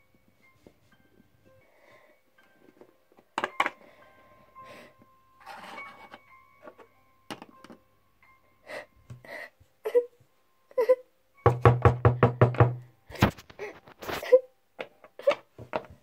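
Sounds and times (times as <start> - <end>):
faint background music: 0.0 - 16.0
plastic toys tapping on wood: 11.5 - 12.8.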